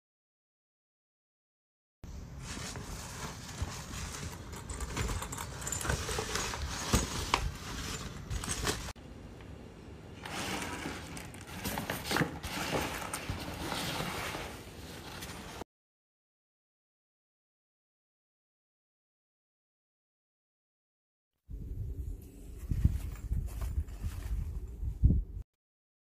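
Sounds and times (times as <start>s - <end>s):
fabric bag rustling: 2.3s - 9.0s, 10.2s - 15.6s, 22.6s - 24.8s.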